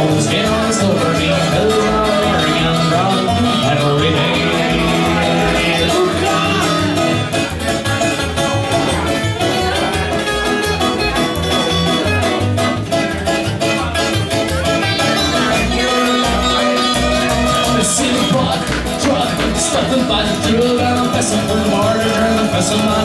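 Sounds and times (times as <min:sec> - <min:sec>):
acoustic guitar picking: 0:00.0 - 0:23.0
banjo picking: 0:00.0 - 0:23.0
plucked double bass: 0:00.0 - 0:23.0.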